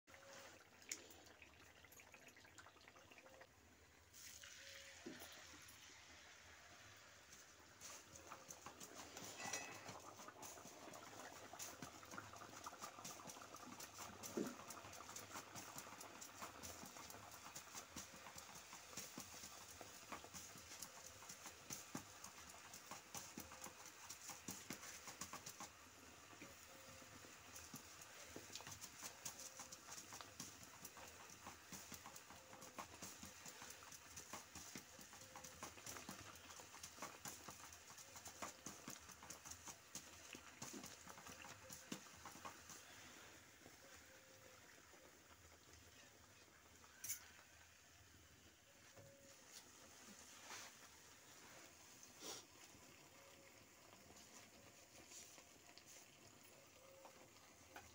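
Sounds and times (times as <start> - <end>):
dough sizzling in hot oil: 0.1 - 57.9.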